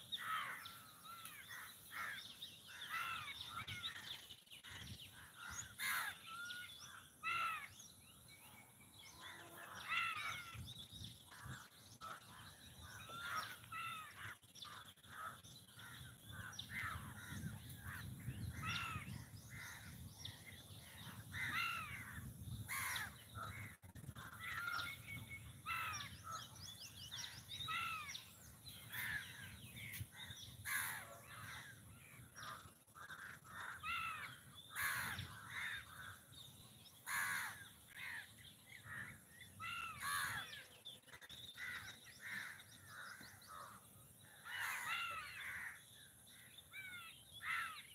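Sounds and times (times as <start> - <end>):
crows cawing: 0.1 - 4.0, 5.2 - 7.7, 11.3 - 19.9, 21.0 - 23.5, 30.6 - 31.8, 32.4 - 36.2, 37.0 - 40.6, 41.6 - 47.9.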